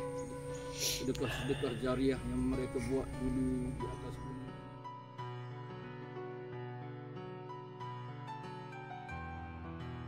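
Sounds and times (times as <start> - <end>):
soft slow background music: 0.0 - 10.0.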